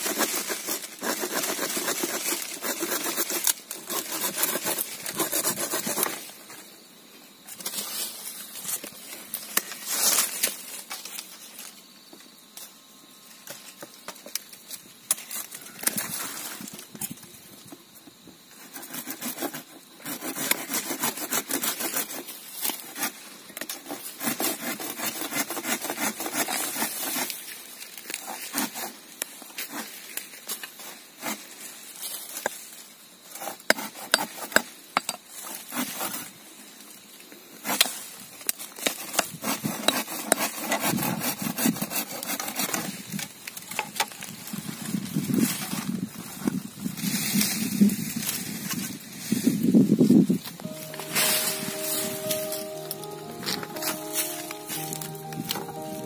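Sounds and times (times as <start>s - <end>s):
blade rasping through stems: 0.0s - 6.3s, 18.6s - 27.4s, 38.8s - 43.0s
digging tool chopping soil and stone: 33.3s - 36.1s.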